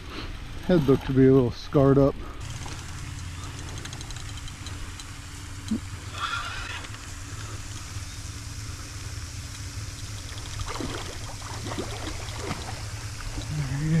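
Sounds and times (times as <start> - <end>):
low rumble: 6.9 - 14.0
water splashing from thrashing animal: 10.2 - 14.0.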